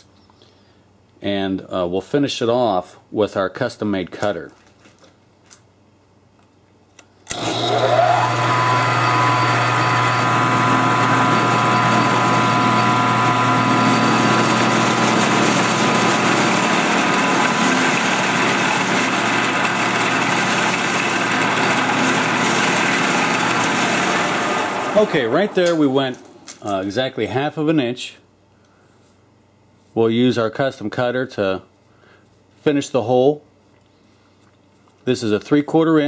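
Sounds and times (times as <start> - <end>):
end mill cutting metal: 7.3 - 26.7
milling machine motor hum: 7.3 - 26.7.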